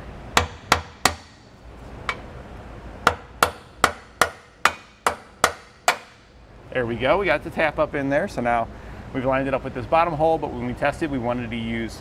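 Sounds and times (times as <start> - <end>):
hammer tapping on metal: 3.0 - 6.2.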